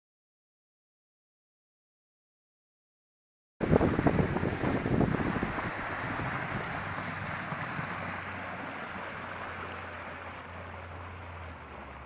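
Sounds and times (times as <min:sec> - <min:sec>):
wind on microphone: 0:03.6 - 0:10.2
boat engine hum: 0:03.6 - 0:12.0
water rushing along hull: 0:03.6 - 0:12.0.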